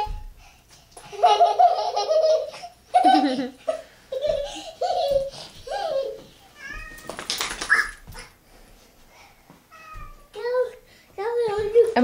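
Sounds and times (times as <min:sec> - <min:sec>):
child laughing: 0:01.0 - 0:06.4.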